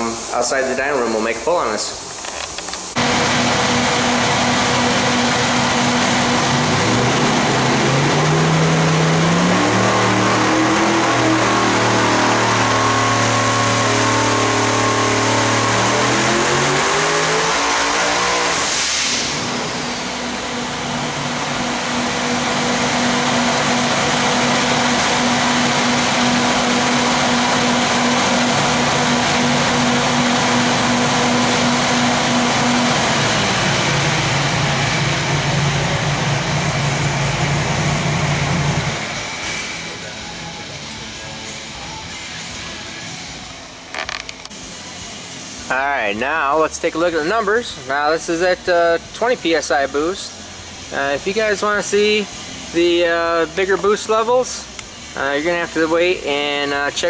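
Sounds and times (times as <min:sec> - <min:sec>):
engine revving at full throttle: 0:03.0 - 0:39.7.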